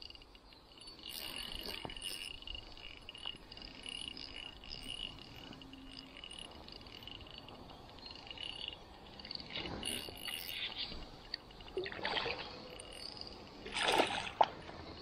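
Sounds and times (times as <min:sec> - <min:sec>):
faint clicks: 0:00.0 - 0:11.8.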